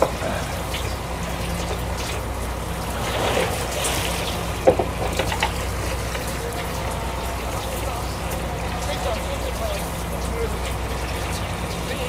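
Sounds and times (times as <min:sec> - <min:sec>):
boat engine humming: 0:00.0 - 0:12.0
water splashing along hull: 0:00.0 - 0:12.0
small knocks: 0:04.6 - 0:06.2.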